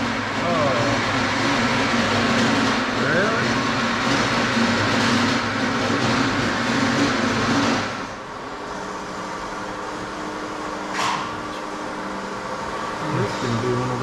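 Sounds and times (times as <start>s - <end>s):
loud mechanical running noise: 0.0s - 14.0s.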